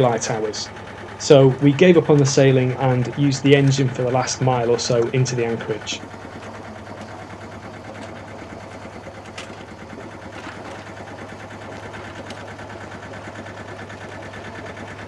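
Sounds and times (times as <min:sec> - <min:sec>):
boat engine droning: 0:00.0 - 0:15.0.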